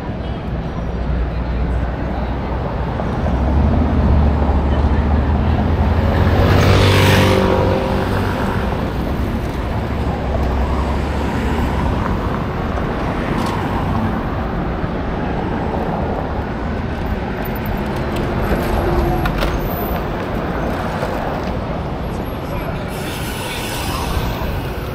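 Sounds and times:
low rumble of traffic: 0.0s - 24.9s
vehicle passing with hiss: 22.8s - 24.9s.

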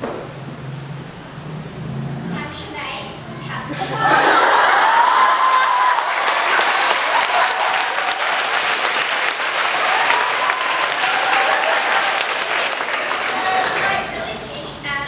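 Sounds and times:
audience clapping: 4.2s - 14.1s.

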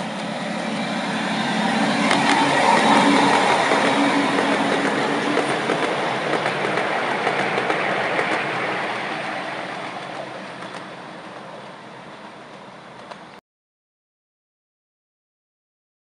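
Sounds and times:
miniature train rolling on rails: 0.0s - 13.4s
light clicks of wheels: 12.4s - 13.4s.

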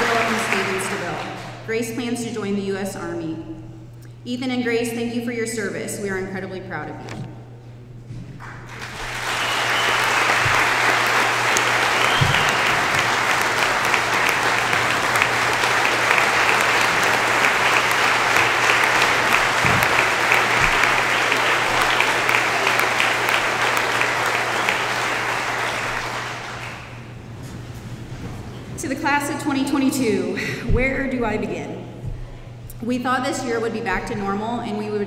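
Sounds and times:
audience applauding: 0.0s - 1.6s, 8.4s - 27.3s.

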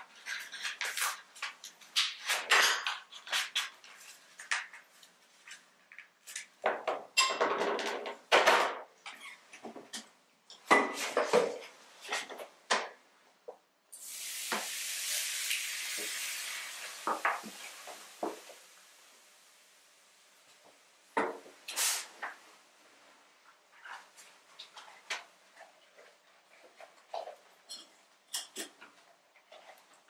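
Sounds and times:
liquid pouring into a pot: 14.0s - 19.5s.

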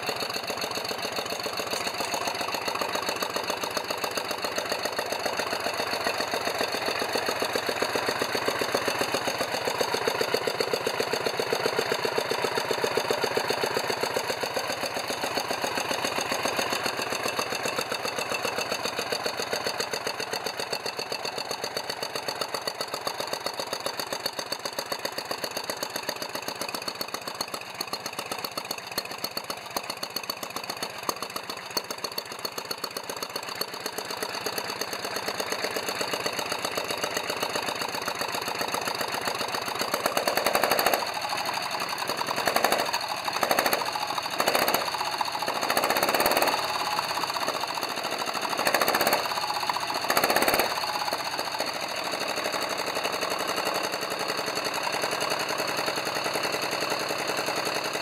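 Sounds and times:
v-twin engine running: 0.0s - 58.0s
engine revving in blips: 42.4s - 44.9s.

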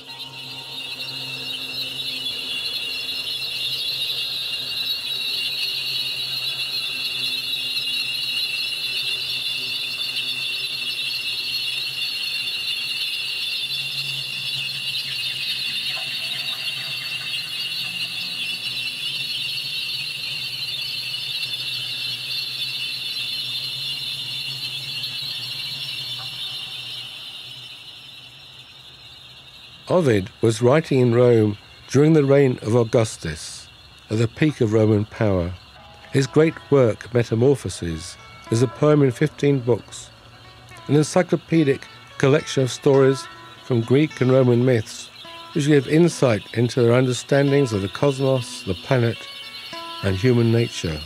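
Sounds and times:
cicadas buzzing: 0.0s - 51.0s.

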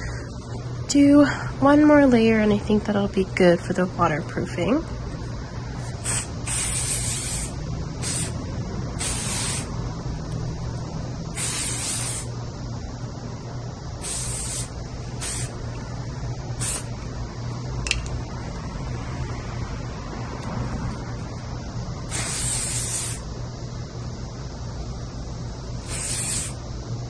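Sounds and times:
aerosol spray hissing: 5.9s - 8.4s, 9.0s - 9.7s, 11.3s - 12.3s, 14.0s - 15.6s, 16.6s - 16.9s, 22.1s - 23.3s, 25.8s - 26.6s.

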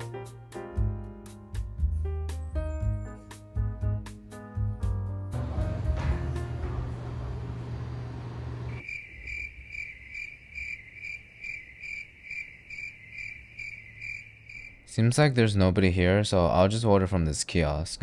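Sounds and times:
background music: 0.0s - 8.0s
crickets chirping: 8.7s - 15.3s.

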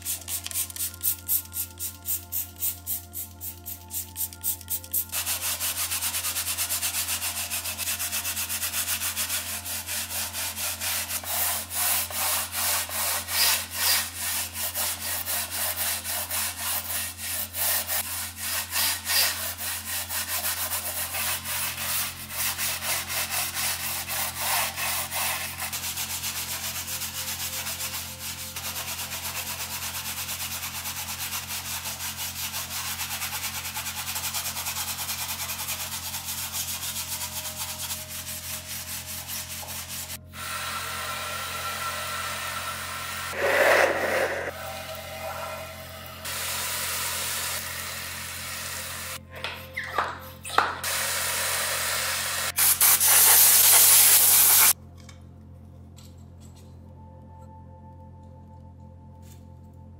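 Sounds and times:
brush scrubbing soapy panel: 5.2s - 40.2s.

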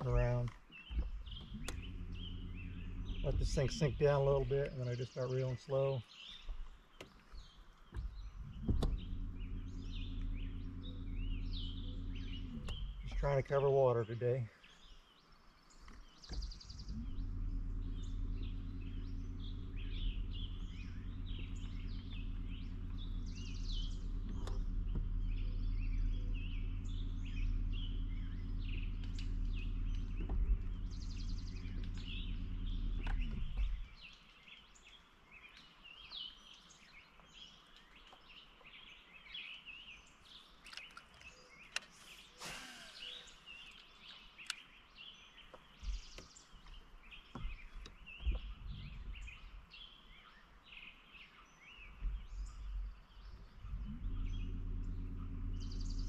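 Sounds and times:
electric trolling motor humming: 0.0s - 4.8s, 6.8s - 13.6s, 15.7s - 34.0s, 52.0s - 56.0s
small birds chirping: 0.0s - 56.0s.

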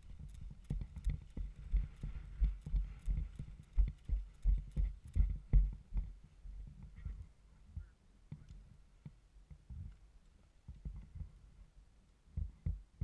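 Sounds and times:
gear clicking and rattling: 0.0s - 6.0s
running footsteps on grass: 0.0s - 7.0s.

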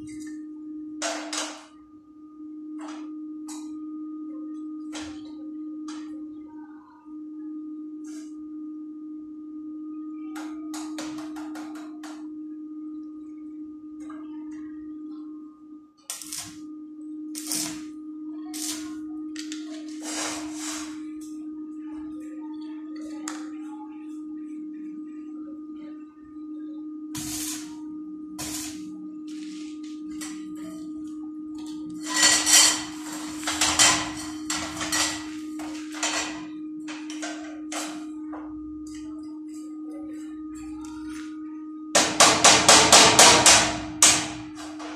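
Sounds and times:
welding machine humming: 16.0s - 22.0s, 27.1s - 44.9s
welding arc bursts: 16.1s - 16.6s, 17.4s - 17.9s, 18.5s - 18.9s, 27.2s - 27.7s, 28.4s - 28.8s.

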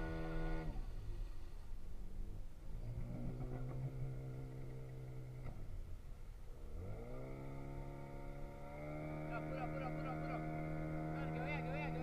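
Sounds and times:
boat engine running: 6.6s - 12.0s.

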